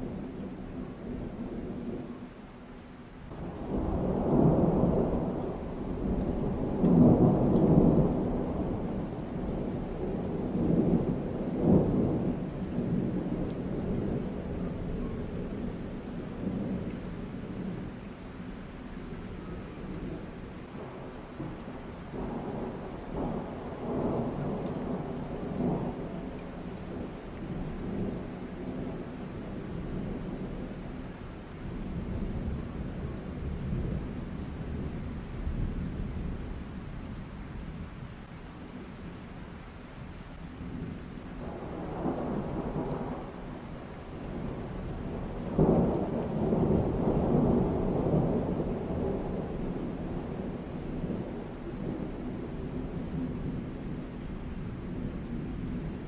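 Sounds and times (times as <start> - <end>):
rolling thunder: 3.3 - 30.8, 40.6 - 56.0.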